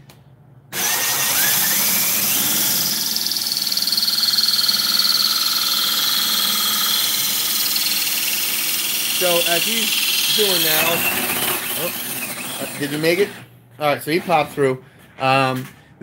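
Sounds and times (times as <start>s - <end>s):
drill grinding through glass: 0.8s - 13.4s.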